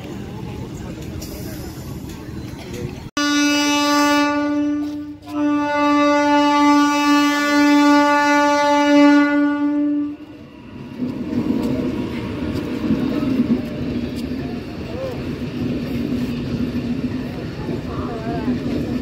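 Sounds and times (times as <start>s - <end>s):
train coaches rumbling on rails: 0.0s - 19.0s
train air horn blasts: 3.2s - 10.2s.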